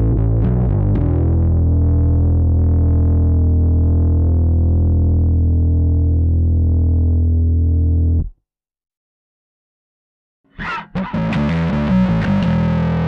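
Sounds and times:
overdriven electric bass note: 0:00.0 - 0:08.2.

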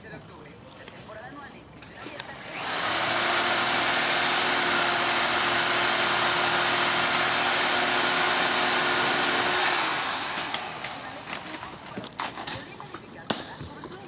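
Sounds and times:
machine motor whining: 0:02.2 - 0:11.9.

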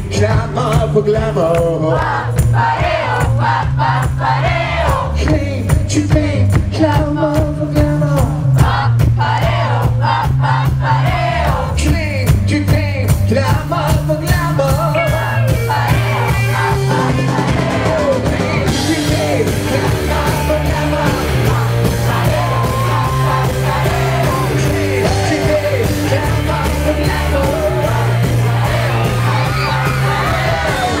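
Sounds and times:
man singing and shouting: 0:00.0 - 0:02.3, 0:05.1 - 0:08.6, 0:11.4 - 0:31.0
bass line: 0:00.0 - 0:31.0
drums: 0:00.0 - 0:31.0
electric guitar: 0:13.1 - 0:31.0.

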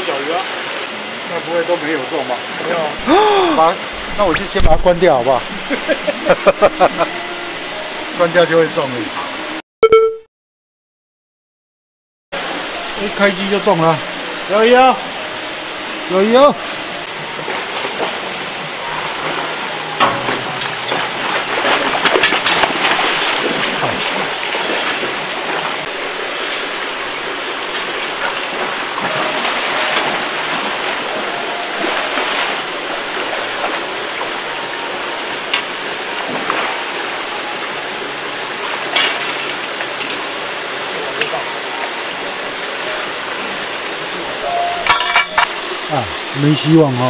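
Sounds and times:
rushing water: 0:00.0 - 0:09.6, 0:12.4 - 0:47.0
fish thrashing and splashing: 0:20.3 - 0:25.9.

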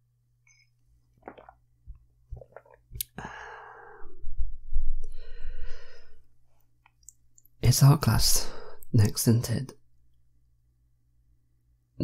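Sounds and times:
breathy exhale: 0:03.2 - 0:04.2, 0:05.1 - 0:06.2.

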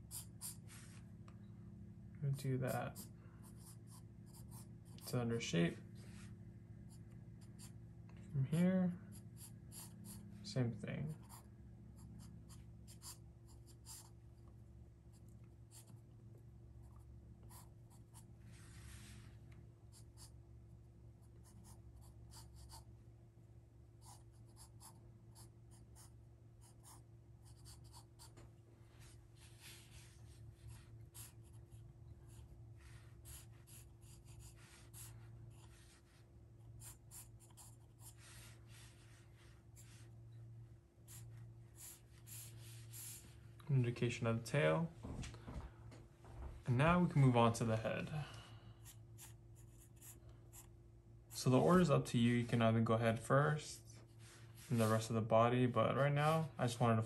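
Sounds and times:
pencil scratching on paper: 0:00.0 - 0:01.0, 0:02.6 - 0:05.5, 0:06.9 - 0:07.8, 0:09.0 - 0:10.4, 0:11.1 - 0:14.2, 0:21.2 - 0:22.9, 0:24.0 - 0:28.4, 0:29.4 - 0:40.1, 0:41.1 - 0:43.4, 0:48.8 - 0:50.7.

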